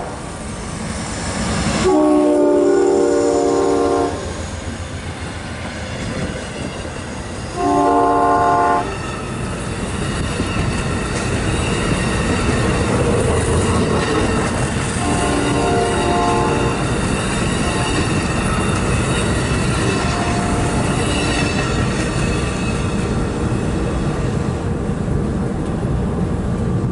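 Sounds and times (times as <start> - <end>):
train rumble and wheel clatter: 0.0 - 26.9
locomotive air horn: 1.8 - 4.3, 7.6 - 9.0, 15.0 - 16.9, 17.6 - 18.2, 19.8 - 21.5.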